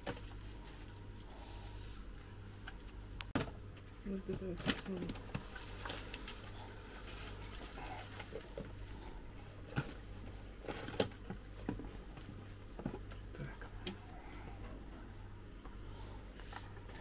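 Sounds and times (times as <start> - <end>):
low steady hum: 0.0 - 17.0
hands pulling apart plant roots: 4.6 - 11.3.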